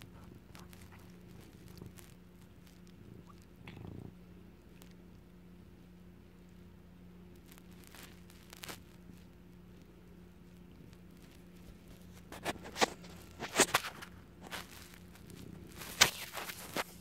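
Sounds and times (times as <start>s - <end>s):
cat purring: 0.0s - 17.0s.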